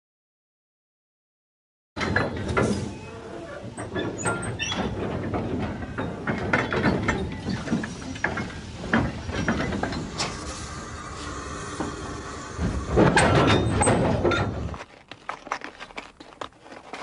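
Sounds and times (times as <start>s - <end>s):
railway wagon clanking: 2.0s - 15.0s
wagon squeaks: 2.5s - 11.0s, 11.8s - 17.0s.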